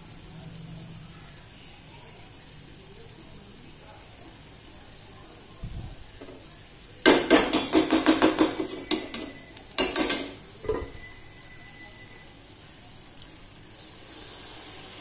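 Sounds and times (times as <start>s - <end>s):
metal spoon scraping a pan: 7.5s - 11.2s.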